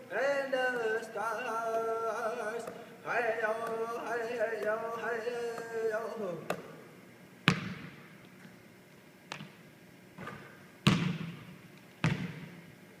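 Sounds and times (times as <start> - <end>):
basketball bouncing on wooden floor: 7.5 - 7.9, 10.2 - 12.6.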